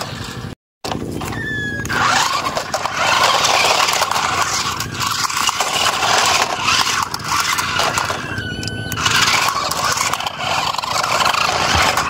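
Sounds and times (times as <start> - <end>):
toy car motors whirring: 1.1 - 12.0
plastic tyres scraping concrete: 1.8 - 12.0.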